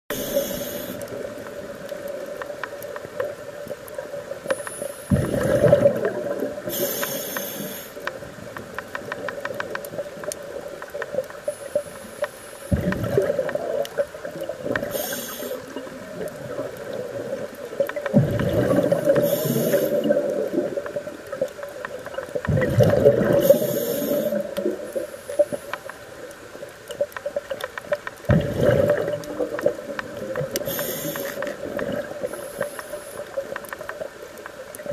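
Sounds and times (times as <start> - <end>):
regulator hissing: 0.1 - 1.1, 6.7 - 8.0, 14.8 - 15.8, 19.2 - 20.1, 30.6 - 31.4
gurgling exhaled bubbles: 5.1 - 6.8, 12.7 - 21.6, 22.2 - 25.1, 28.2 - 32.5.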